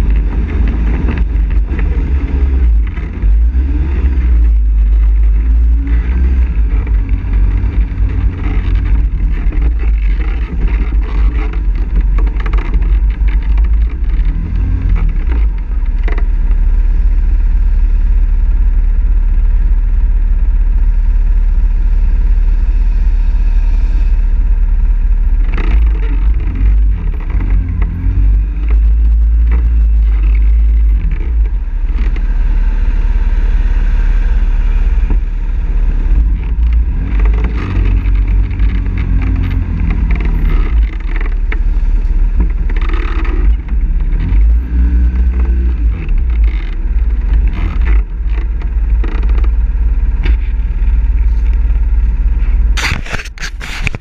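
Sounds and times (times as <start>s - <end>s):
quad engine running: 0.0s - 54.0s
thumps from trail bumps: 34.8s - 54.0s.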